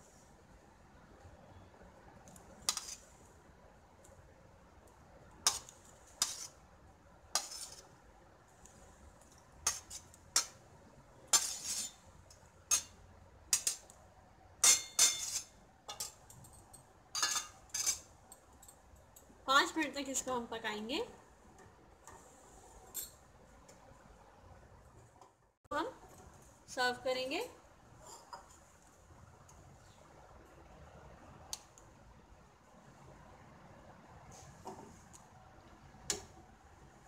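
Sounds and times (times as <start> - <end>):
metal spoon clinking on plate: 14.6 - 18.8.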